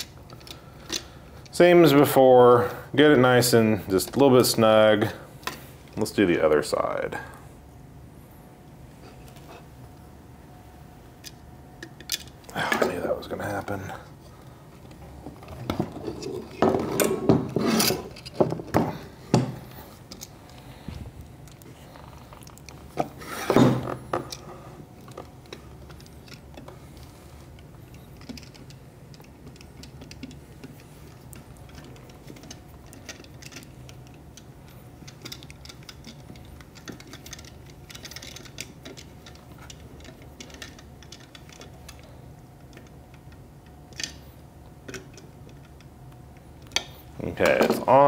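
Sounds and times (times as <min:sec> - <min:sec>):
faint steady hum: 0:00.0 - 0:48.0
plastic parts handling: 0:14.8 - 0:45.9.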